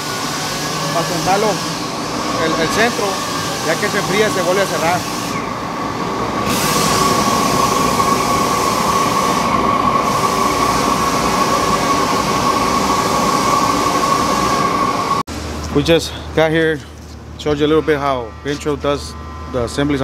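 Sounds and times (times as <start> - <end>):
gas torch hissing: 0.0 - 5.7, 6.3 - 15.2
steady high-pitched tone: 0.0 - 15.2.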